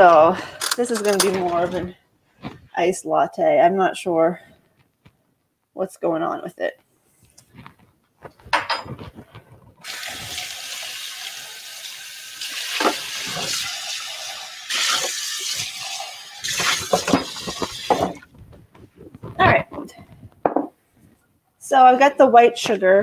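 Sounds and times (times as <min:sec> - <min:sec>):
dishes clattering: 0:08.4 - 0:09.2, 0:16.4 - 0:18.3, 0:20.4 - 0:20.8
kitchen tap running: 0:09.8 - 0:18.3.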